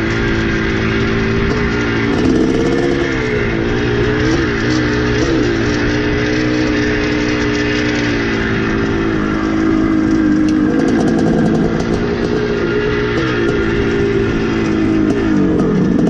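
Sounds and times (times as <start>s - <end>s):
two-stroke dirt bike engine revving: 0.0s - 16.0s.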